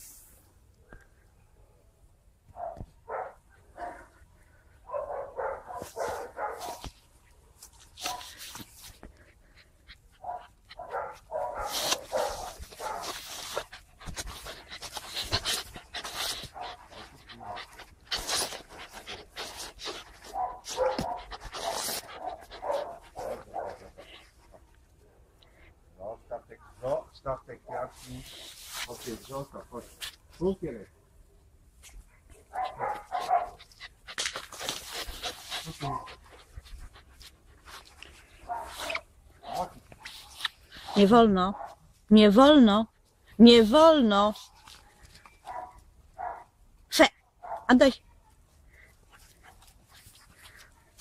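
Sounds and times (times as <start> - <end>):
puppies panting: 3.5 - 27.0, 32.0 - 41.2, 48.5 - 51.0
puppies barking and yapping: 9.4 - 24.4.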